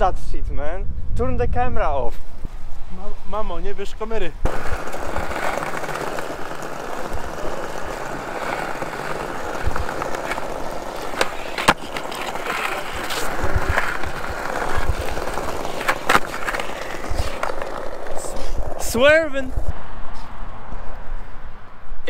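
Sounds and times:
skateboard wheels rumbling on paving: 4.4 - 19.6
skateboard landing clacks: 4.5 - 18.8
skateboard pop: 4.5 - 18.8.

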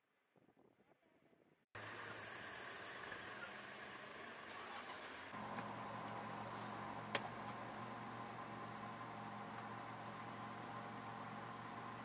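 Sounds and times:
engine humming: 1.8 - 12.0.

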